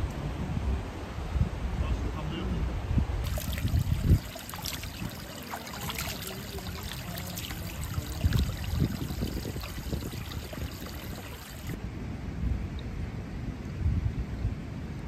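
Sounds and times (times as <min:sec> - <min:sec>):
water pouring into stone trough: 0:03.2 - 0:11.8.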